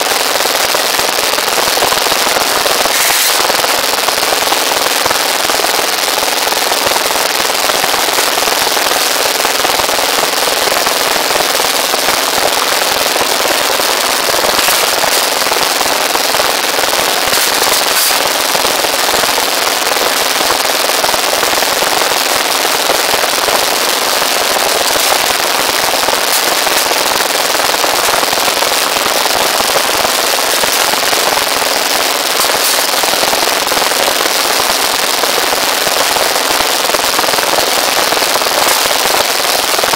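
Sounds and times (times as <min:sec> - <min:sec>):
steel rebar clinks: 0:02.9 - 0:03.6, 0:14.5 - 0:15.6, 0:17.2 - 0:18.4.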